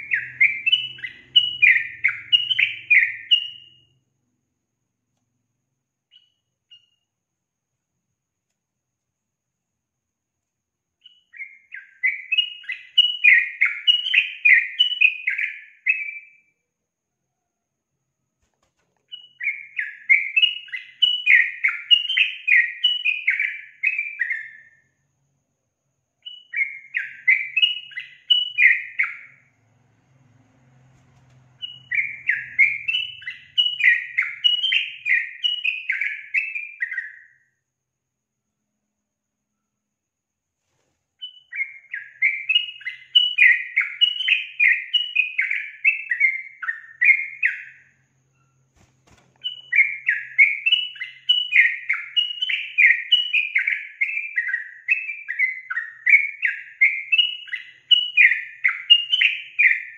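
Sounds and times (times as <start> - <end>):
bird chattering song: 0.0 - 3.9, 11.0 - 16.3, 19.1 - 24.8, 26.2 - 29.4, 31.6 - 37.4, 41.2 - 48.8, 49.4 - 59.9.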